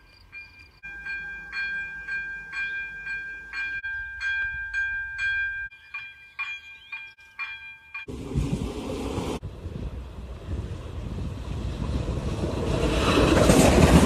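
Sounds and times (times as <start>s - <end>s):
level crossing warning bells: 0.0s - 8.2s.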